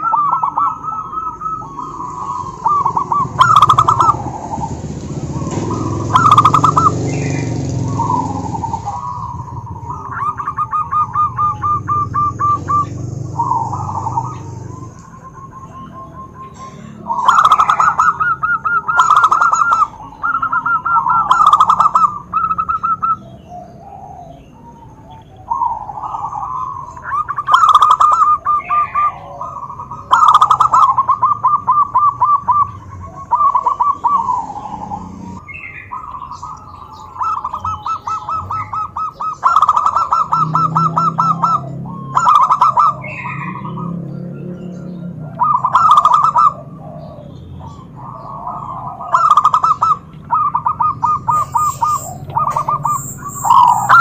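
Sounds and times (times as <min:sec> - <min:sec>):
doves cooing: 0:00.0 - 0:54.0.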